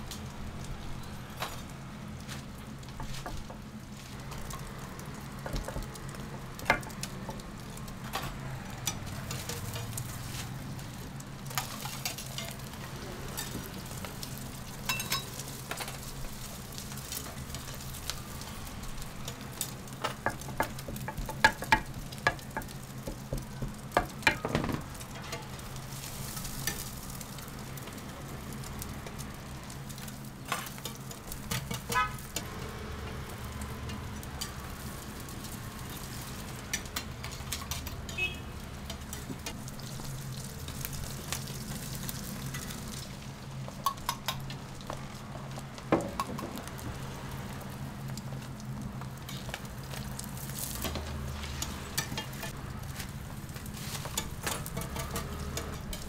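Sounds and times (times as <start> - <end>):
batter sizzling on griddle: 0.0 - 56.0.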